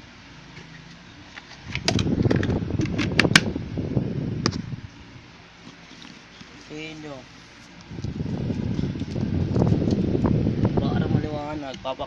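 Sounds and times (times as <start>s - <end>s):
handling rubbing and rustling: 0.4s - 3.2s, 5.5s - 10.2s.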